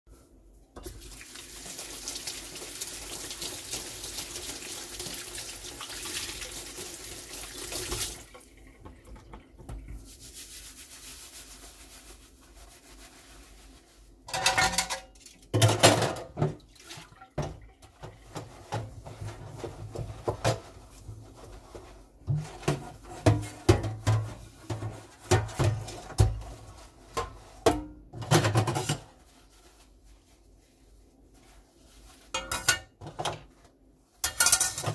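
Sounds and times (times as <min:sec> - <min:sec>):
colander being scrubbed: 0:09.8 - 0:15.2, 0:17.9 - 0:27.7, 0:28.3 - 0:32.8
dishes clanking against steel: 0:32.4 - 0:33.0, 0:34.2 - 0:34.9.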